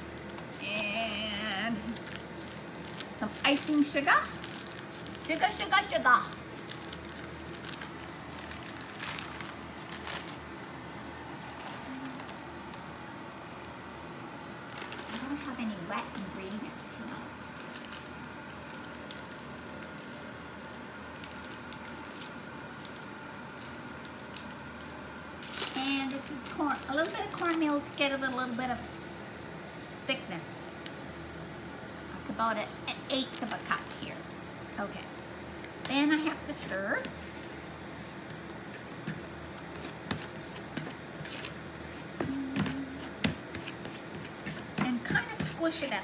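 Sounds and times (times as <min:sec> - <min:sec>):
steady low hum: 0:00.0 - 0:46.0
plastic bag crinkling: 0:01.6 - 0:10.6, 0:11.3 - 0:12.9, 0:14.5 - 0:16.8, 0:17.4 - 0:30.1, 0:30.7 - 0:34.6, 0:35.7 - 0:45.9
fork stirring crumbly mix in bowl: 0:39.7 - 0:45.8
brief low tone: 0:42.3 - 0:43.0.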